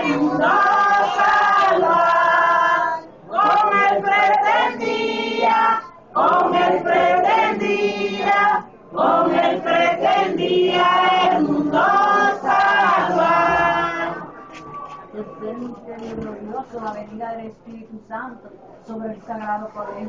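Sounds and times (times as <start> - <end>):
group singing a hymn: 0.0 - 15.3.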